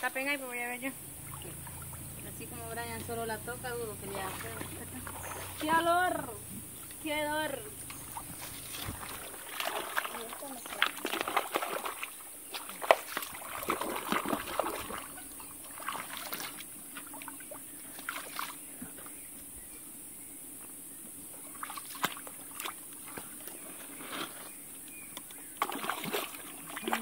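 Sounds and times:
stream trickling: 0:00.0 - 0:19.3, 0:21.2 - 0:27.0
hands splashing in stream water: 0:07.9 - 0:18.7, 0:21.5 - 0:24.4, 0:25.6 - 0:27.0.

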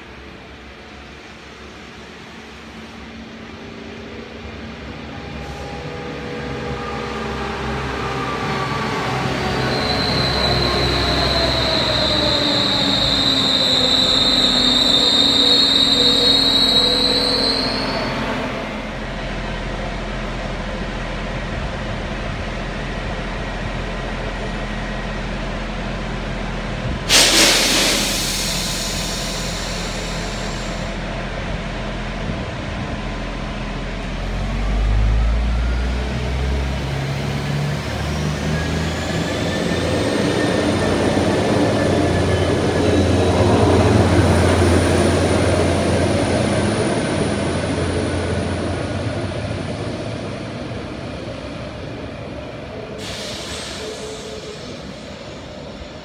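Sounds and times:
train slowing down: 0:00.0 - 0:56.0
brake squeal: 0:09.2 - 0:18.4, 0:53.0 - 0:56.0
air release hiss: 0:27.1 - 0:31.0, 0:53.0 - 0:55.4.

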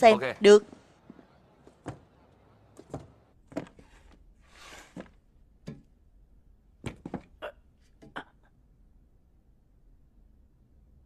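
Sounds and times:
soft knocks and bumps: 0:00.6 - 0:06.0, 0:06.8 - 0:08.2.

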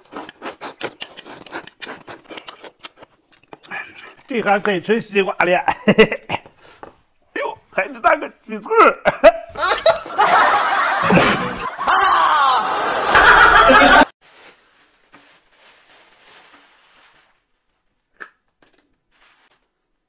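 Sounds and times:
people laughing and snickering: 0:09.0 - 0:14.1.

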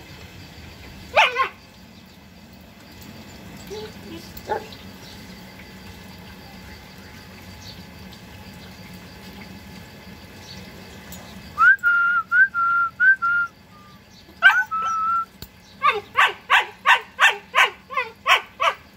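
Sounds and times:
puppies yipping: 0:01.1 - 0:01.6, 0:03.6 - 0:04.8, 0:14.4 - 0:15.2, 0:15.8 - 0:18.8
high whistled notes: 0:11.6 - 0:13.9.

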